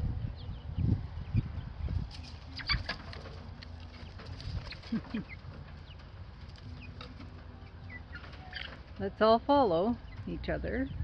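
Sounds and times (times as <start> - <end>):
chicks peeping and chirping: 0.0 - 11.0
low rumble: 0.0 - 11.0.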